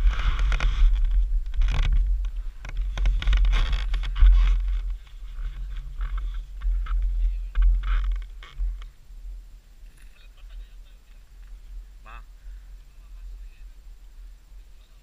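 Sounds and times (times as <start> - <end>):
camera handling rustles and scrapes: 0.0 - 8.9
wind buffeting: 0.0 - 15.0.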